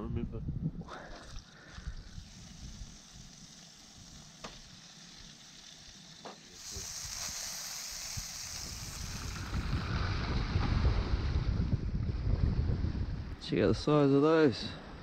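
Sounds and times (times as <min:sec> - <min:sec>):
fish fillets sizzling in a pan: 0:02.0 - 0:09.8.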